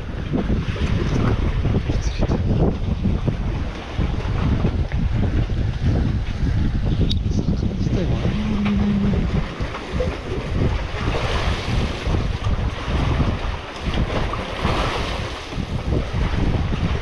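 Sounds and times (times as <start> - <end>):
sea waves washing against rocks: 0.0 - 7.0, 7.6 - 17.0
wind buffeting microphone: 0.0 - 17.0
low steady hum: 6.9 - 10.8.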